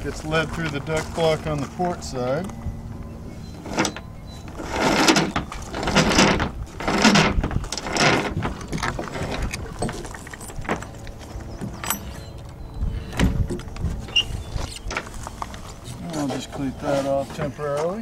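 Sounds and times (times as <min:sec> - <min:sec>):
rigging clicks and knocks: 0:03.6 - 0:15.7.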